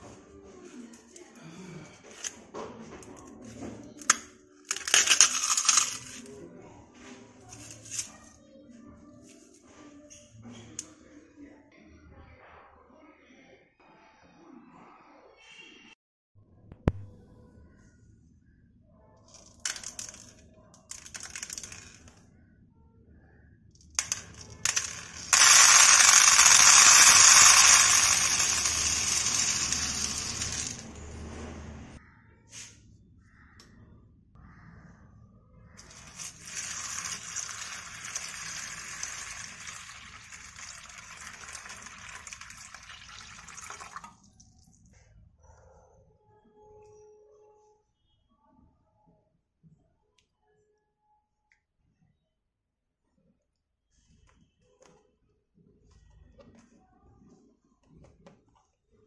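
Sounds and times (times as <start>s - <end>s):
pearls rattling: 4.1s - 6.3s, 19.3s - 22.2s, 24.0s - 30.9s, 35.8s - 44.0s
tapioca pearls pouring into container: 24.0s - 30.8s, 35.8s - 44.3s.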